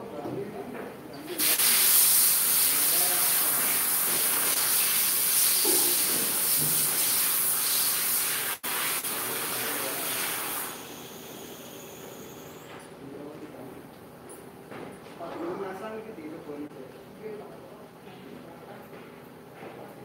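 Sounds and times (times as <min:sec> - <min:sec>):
compressed air hissing: 0:01.4 - 0:12.7.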